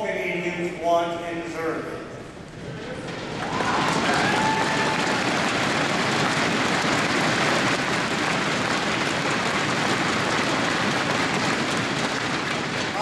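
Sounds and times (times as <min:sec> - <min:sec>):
audience applauding: 0:02.6 - 0:13.0
crowd cheering: 0:02.6 - 0:13.0.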